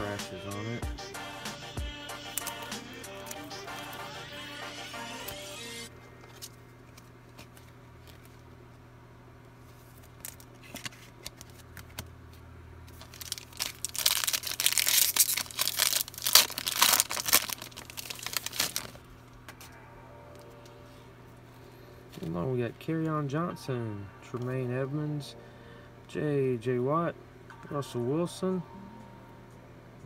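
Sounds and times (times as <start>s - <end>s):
foil wrapper crinkling and tearing: 2.3s - 3.4s, 9.8s - 12.0s, 12.9s - 19.1s.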